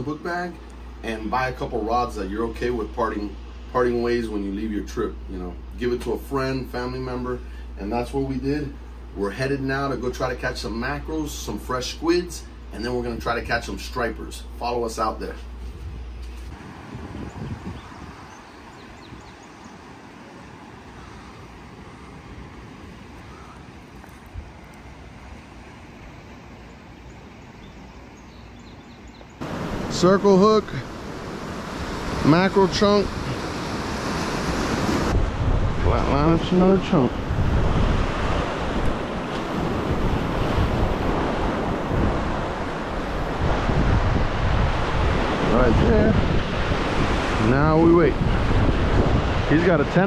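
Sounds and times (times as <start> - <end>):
outdoor background noise: 0.0 - 50.0
wind buffeting microphone: 15.7 - 19.7, 30.8 - 50.0
ocean surf breaking over rocks: 17.9 - 26.7, 29.4 - 50.0.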